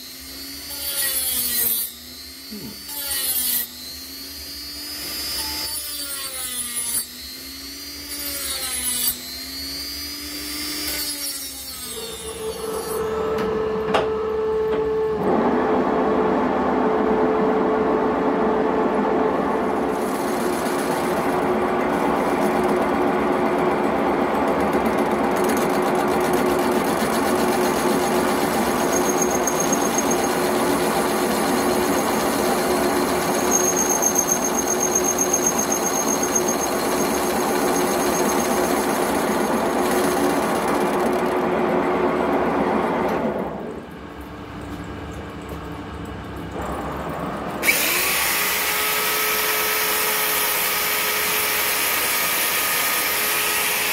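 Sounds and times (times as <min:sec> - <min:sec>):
metal lathe running: 0:19.6 - 0:42.4.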